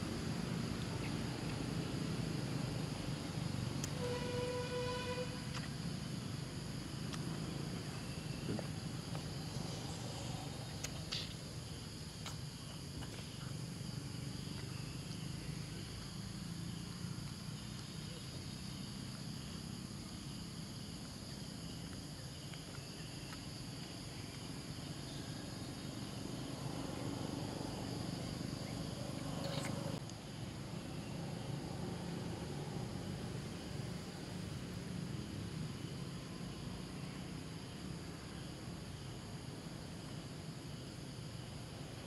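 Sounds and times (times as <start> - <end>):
low outdoor rumble: 0.0 - 12.2
high-pitched insect chorus: 0.0 - 42.0.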